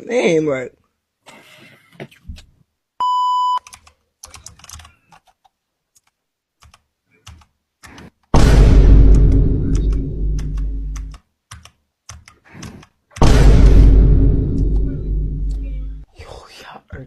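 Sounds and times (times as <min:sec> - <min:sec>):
short steady beep: 0:03.0 - 0:03.7
keyboard typing: 0:03.6 - 0:08.1, 0:09.7 - 0:13.2
deep distorted sound: 0:08.4 - 0:11.1, 0:13.2 - 0:16.0.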